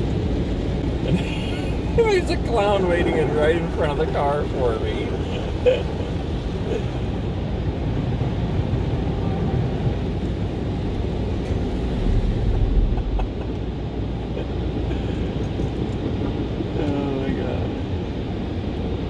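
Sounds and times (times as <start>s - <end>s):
car wash rushing noise: 0.0s - 19.0s
low rumble of machinery: 0.0s - 19.0s.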